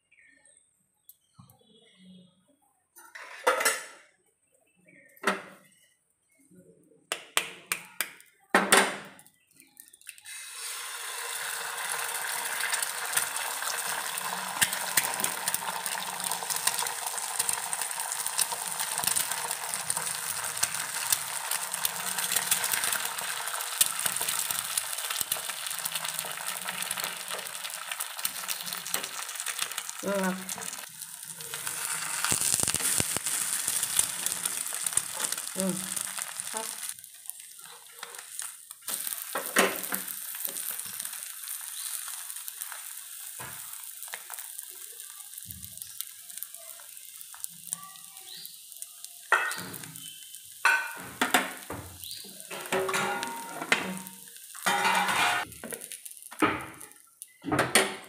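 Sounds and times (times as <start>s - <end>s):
eggs sizzling in oil: 7.9s - 57.9s
kitchen utensils clinking: 50.6s - 51.8s, 52.4s - 55.6s.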